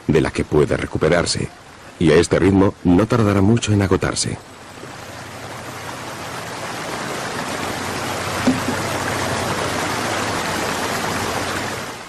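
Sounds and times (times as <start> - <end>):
water gushing into trough: 4.9 - 12.0.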